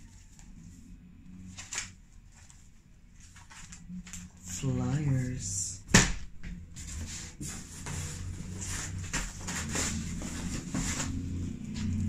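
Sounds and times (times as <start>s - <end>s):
steady low hum: 0.0s - 12.0s
packages rustling in cardboard box: 6.8s - 12.0s.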